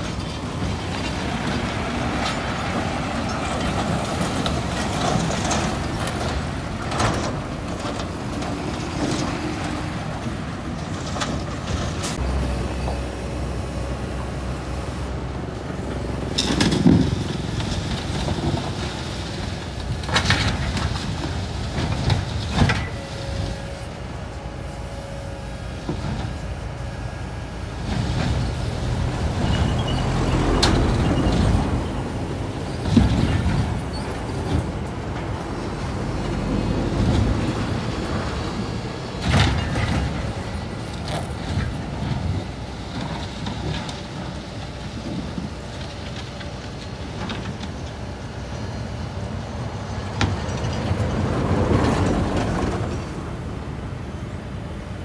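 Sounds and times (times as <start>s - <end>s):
excavator diesel engine under load: 0.0s - 55.0s
steel hull scraping and clanking: 27.8s - 44.3s.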